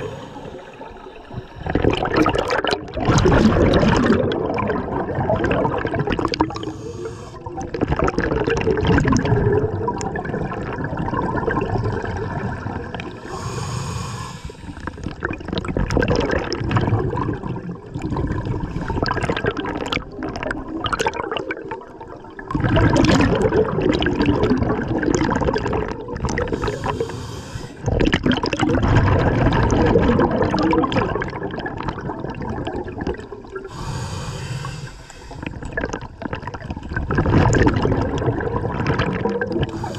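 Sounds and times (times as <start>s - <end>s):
regulator hissing inhalations: 0.0s - 1.7s, 6.5s - 7.5s, 13.2s - 14.9s, 26.5s - 27.8s, 33.7s - 35.6s, 39.7s - 39.9s
exhaled bubbles underwater: 0.0s - 39.9s.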